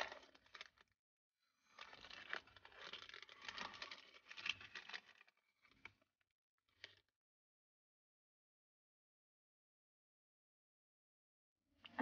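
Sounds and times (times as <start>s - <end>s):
wrapper crinkling and tearing: 0.0s - 0.8s, 1.8s - 5.4s.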